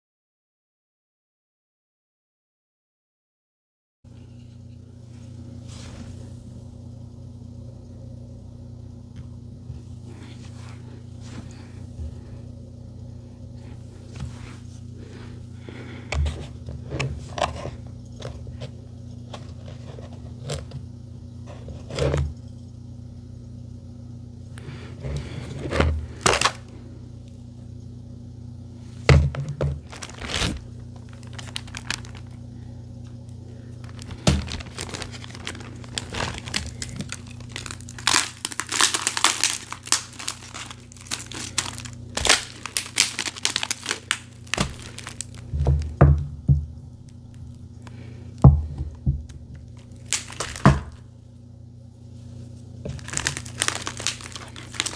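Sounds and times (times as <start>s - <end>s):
plastic bag of ice crinkling: 24.7s - 26.8s, 29.4s - 32.6s, 33.5s - 46.0s, 49.0s - 51.1s, 52.4s - 54.9s.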